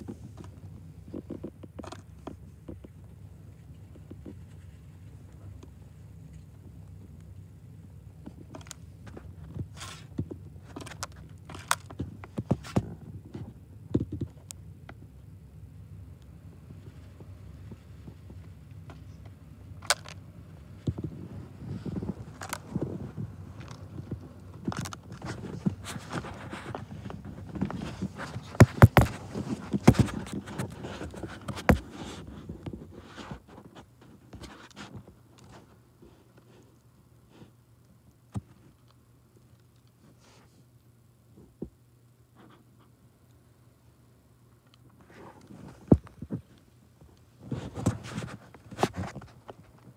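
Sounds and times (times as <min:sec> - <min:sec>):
steady low hum: 0:00.0 - 0:49.9
bird pecking and cracking seeds: 0:08.2 - 0:12.7, 0:19.7 - 0:21.1, 0:21.8 - 0:31.9.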